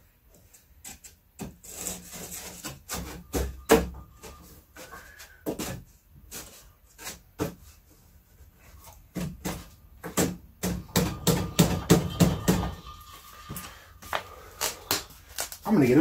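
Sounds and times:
wooden boards knocking: 0:09.1 - 0:12.9.

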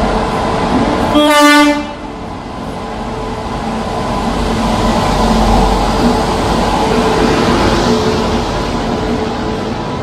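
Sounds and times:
train rumbling: 0:00.0 - 0:10.0
locomotive air horn blast: 0:01.1 - 0:02.1.

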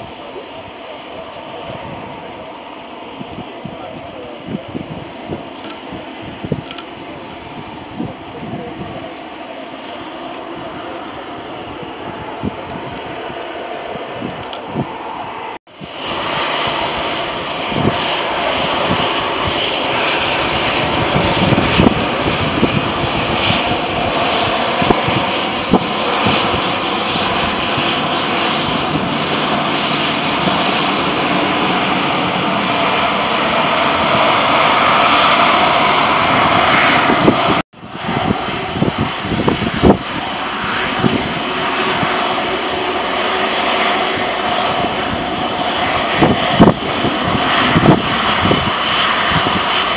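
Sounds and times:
jet engines at high power: 0:00.0 - 0:49.9.

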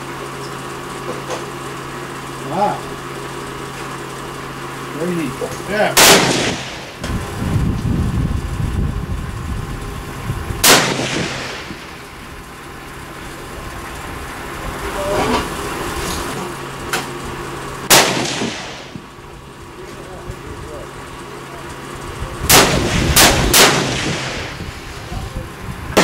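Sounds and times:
faint sharp gunshot reports: 0:05.9 - 0:06.9, 0:10.6 - 0:11.9, 0:17.9 - 0:19.0, 0:22.5 - 0:24.6
rifle shots echoing: 0:05.9 - 0:07.1, 0:10.6 - 0:12.1, 0:17.9 - 0:19.0, 0:22.5 - 0:24.6.

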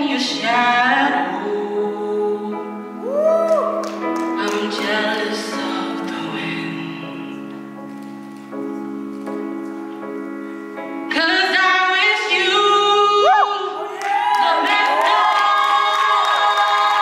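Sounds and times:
woman singing: 0:00.0 - 0:07.4, 0:11.1 - 0:17.0
slow backing chords: 0:00.0 - 0:13.8.

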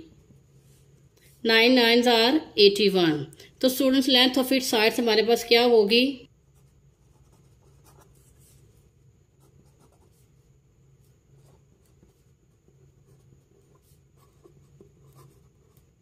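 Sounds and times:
pen writing on paper: 0:13.0 - 0:15.9.

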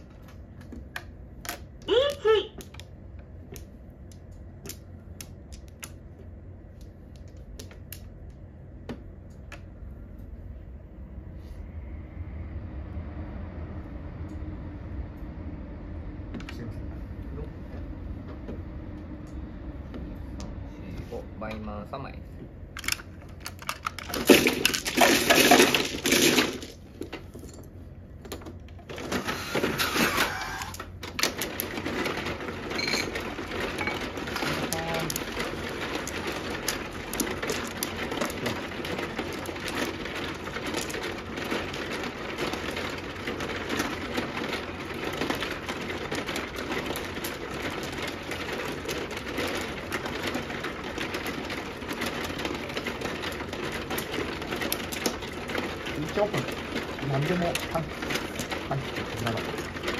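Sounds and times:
mahjong tiles clacking: 0:00.0 - 0:09.7, 0:22.8 - 0:59.9
steady low hum: 0:00.0 - 0:59.9.

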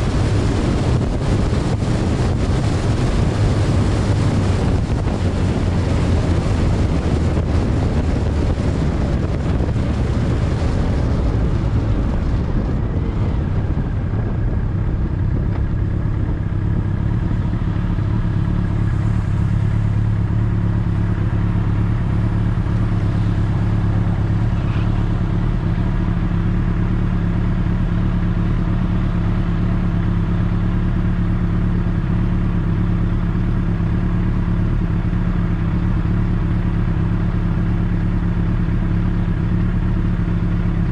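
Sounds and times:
wind noise on microphone: 0:00.0 - 0:20.3
motorcycle engine running: 0:00.0 - 0:40.9.

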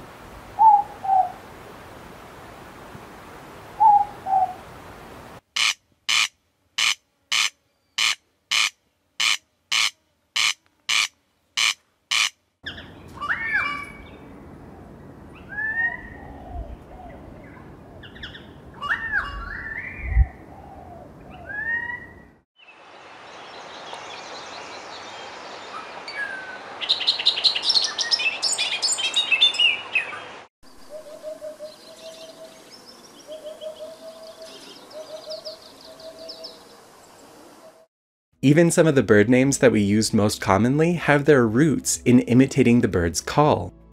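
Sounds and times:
corn crake rasping call: 0:05.6 - 0:12.4
birds gliding whistles: 0:05.6 - 0:14.3, 0:15.4 - 0:22.3, 0:23.3 - 0:37.8.

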